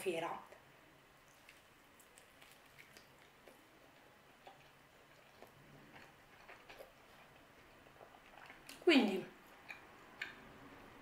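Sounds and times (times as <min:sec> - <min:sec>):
faint chewing mouth clicks: 0:01.3 - 0:08.8, 0:09.4 - 0:10.9.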